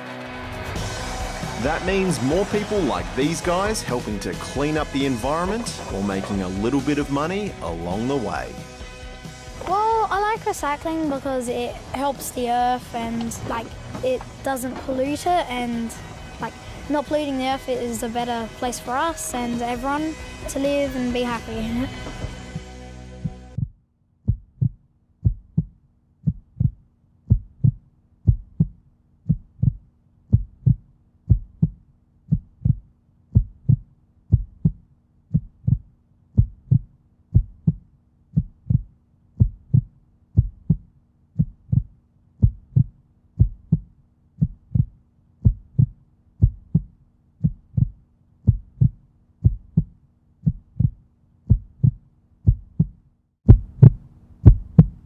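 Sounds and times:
low thumping pulse: 0:00.7 - 0:55.0.

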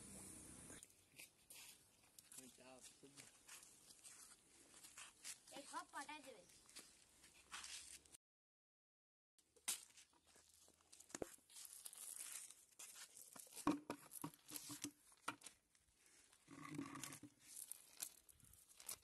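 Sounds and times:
wet net rustling and crackling: 0:09.7 - 0:19.0.

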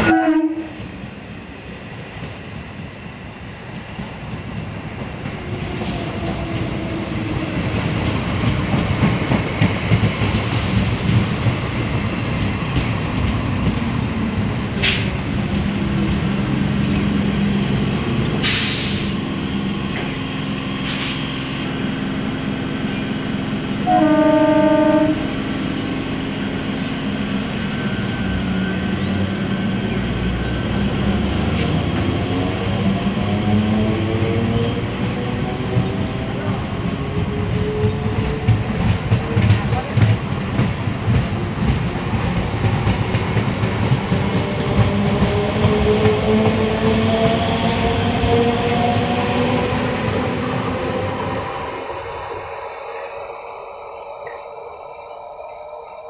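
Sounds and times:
train horn: 0:00.0 - 0:00.8, 0:23.8 - 0:25.3
train rumbling past on rails: 0:00.0 - 0:56.0.

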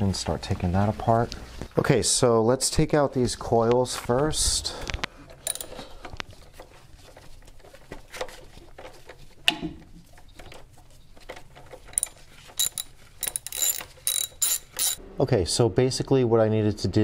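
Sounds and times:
ratchet wrench clicking: 0:05.4 - 0:05.8, 0:12.0 - 0:15.0.

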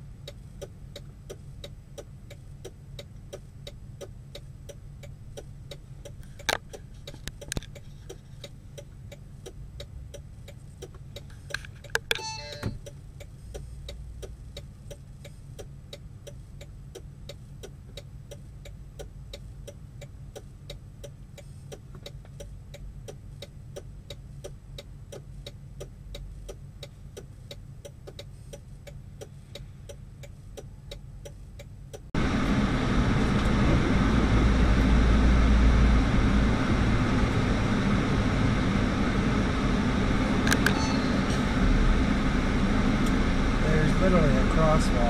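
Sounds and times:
faint steady ticking: 0:00.0 - 0:32.2
road noise while driving: 0:00.0 - 0:45.0
truck engine rumble: 0:00.0 - 0:45.0.

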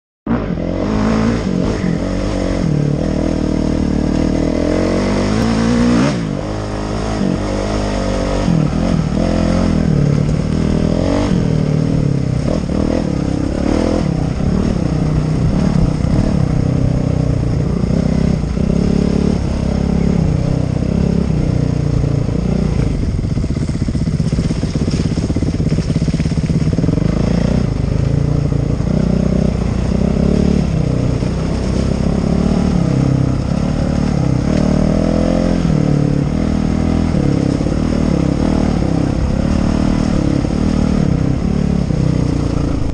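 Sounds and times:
dirt bike engine revving: 0:00.3 - 0:42.9.

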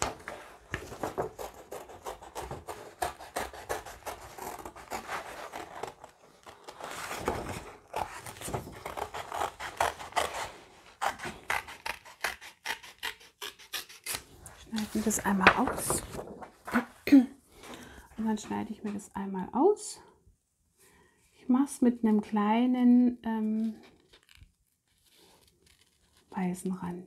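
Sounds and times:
paper rustling: 0:00.0 - 0:02.8, 0:04.0 - 0:11.8, 0:14.2 - 0:17.0, 0:23.6 - 0:26.4
scissors snipping paper: 0:00.0 - 0:15.7.

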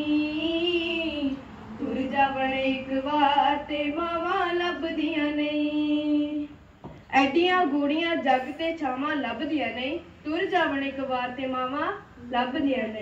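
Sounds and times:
girl singing through a loudspeaker: 0:00.0 - 0:09.6.

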